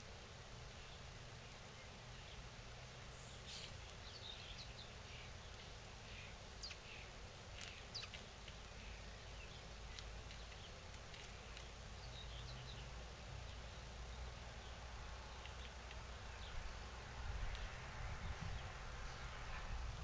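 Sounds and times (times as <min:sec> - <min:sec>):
outdoor hiss: 0:00.0 - 0:18.0
faint bird chirps: 0:03.1 - 0:16.9.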